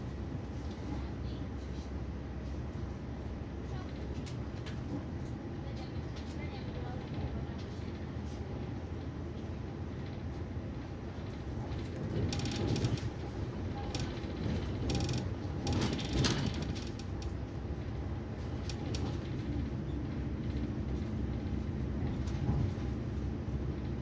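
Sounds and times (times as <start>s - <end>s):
train carriage rumbling on track: 0.0s - 24.0s
rapid clicking and rattling: 10.0s - 22.8s.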